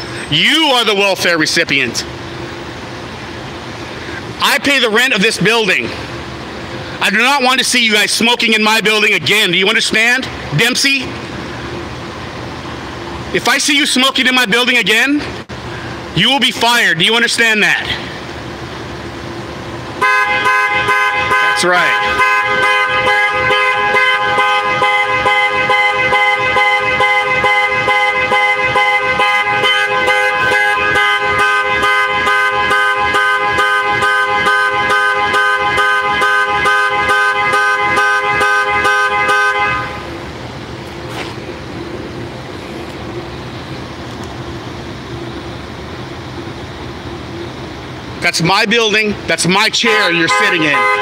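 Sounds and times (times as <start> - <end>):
car horn blaring: 20.0 - 40.3, 49.7 - 51.0.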